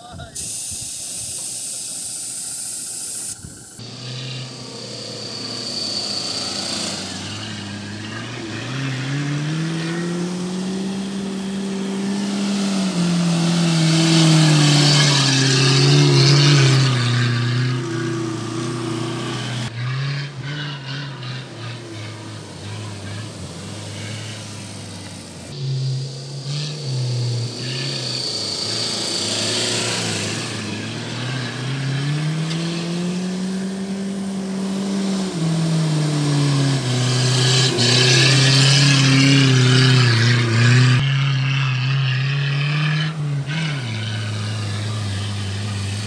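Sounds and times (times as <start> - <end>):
steady hiss: 0.4 - 3.8
engine revving hard: 3.8 - 46.0.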